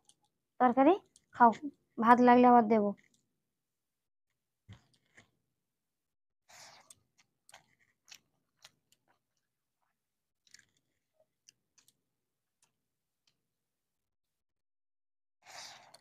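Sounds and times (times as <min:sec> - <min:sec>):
people chewing: 0:04.7 - 0:05.4, 0:06.5 - 0:13.4.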